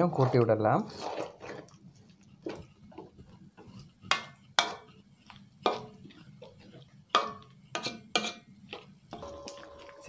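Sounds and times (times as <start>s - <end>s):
ladle scraping metal pot: 0.0s - 5.0s, 5.6s - 8.4s.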